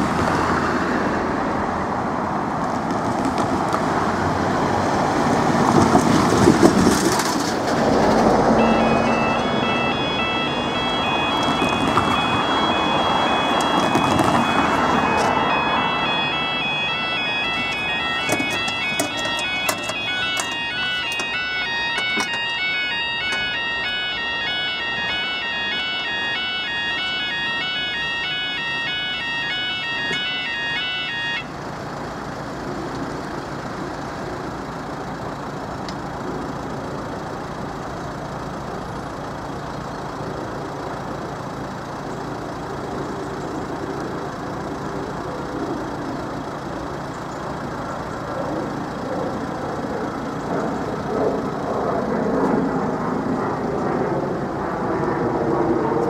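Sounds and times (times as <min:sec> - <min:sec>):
road traffic: 0:00.0 - 0:56.0
two-tone electronic alarm: 0:08.4 - 0:31.6.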